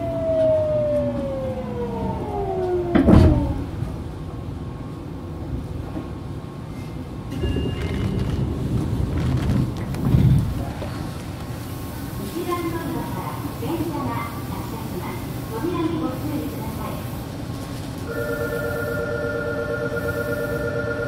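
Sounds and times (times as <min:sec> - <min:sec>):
train braking noise burst: 0:07.3 - 0:08.2, 0:19.9 - 0:21.0
short beep: 0:07.4 - 0:08.0.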